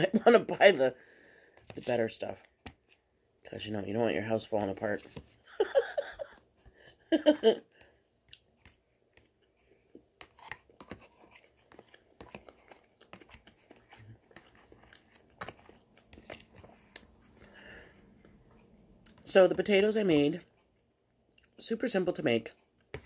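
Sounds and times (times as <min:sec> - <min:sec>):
soft chewing: 0:07.7 - 0:21.6, 0:22.5 - 0:23.0.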